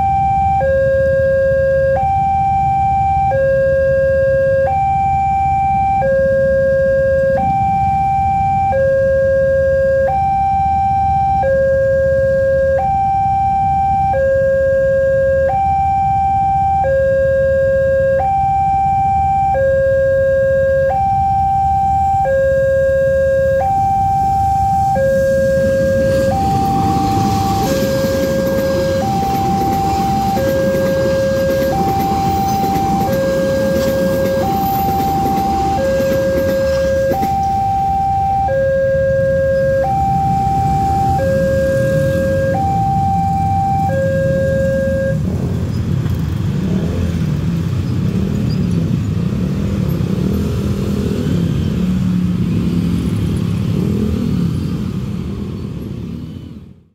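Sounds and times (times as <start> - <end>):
level crossing alarm two-tone: 0.0 - 45.3
motorcycle engines revving: 22.1 - 56.7
passing train rumble: 24.1 - 56.8.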